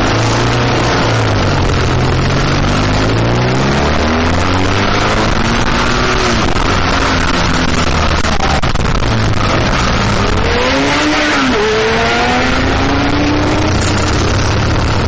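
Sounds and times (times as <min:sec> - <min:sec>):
motorcycle engine accelerating: 0:00.0 - 0:15.0
wind rush over microphone: 0:00.0 - 0:15.0.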